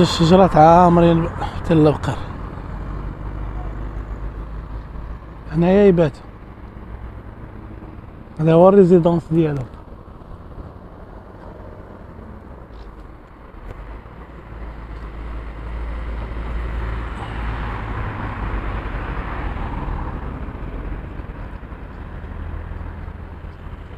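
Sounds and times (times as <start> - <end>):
passing car: 0.0 - 23.9
steady low traffic rumble: 0.0 - 23.9.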